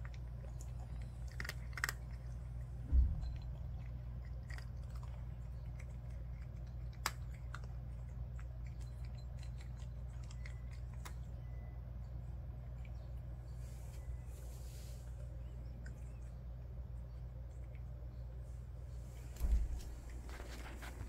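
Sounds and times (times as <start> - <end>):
cat chewing dry kibble: 0.0 - 21.0
steady low hum: 0.0 - 21.0
low thump: 2.8 - 3.5, 19.4 - 21.0.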